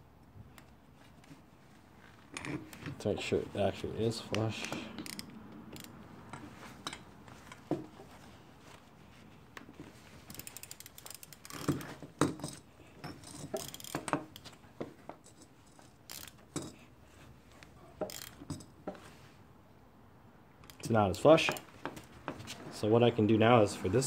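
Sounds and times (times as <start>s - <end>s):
ratchet wrench clicking: 4.6s - 6.0s, 10.3s - 12.6s, 13.2s - 14.5s, 15.3s - 16.4s, 18.0s - 18.7s, 20.6s - 21.7s.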